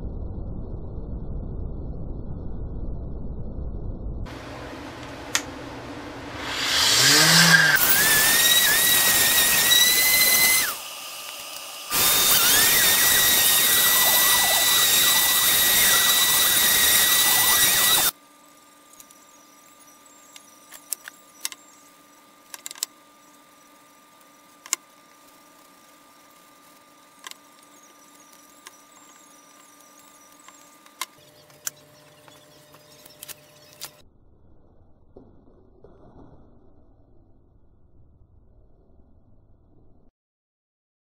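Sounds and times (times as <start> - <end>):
orbit sander whining: 4.3 - 18.2, 18.8 - 34.0.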